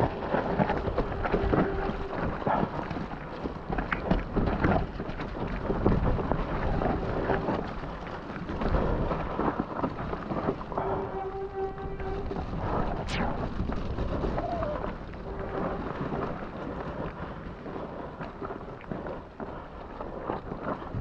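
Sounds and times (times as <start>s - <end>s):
wind and tyres through mud: 0.0s - 21.0s
steady hum: 10.8s - 14.3s.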